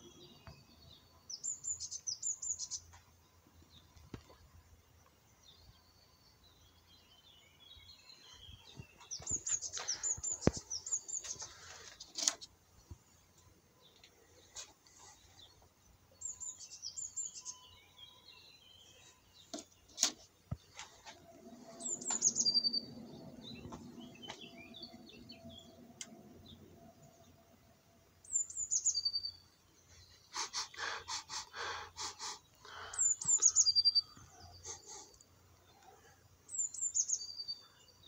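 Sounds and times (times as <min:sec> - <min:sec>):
songbird singing: 0:00.0 - 0:38.0
low steady hum: 0:20.9 - 0:28.4.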